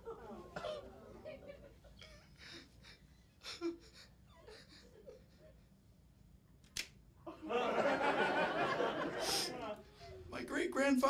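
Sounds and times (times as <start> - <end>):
sharp click: 6.6 - 7.0
audience laughter: 7.3 - 9.8.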